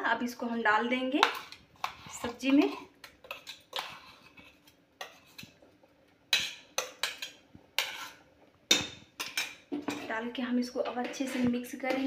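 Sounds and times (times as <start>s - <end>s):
spoon scraping a steel jar: 1.2s - 5.5s, 6.4s - 8.2s.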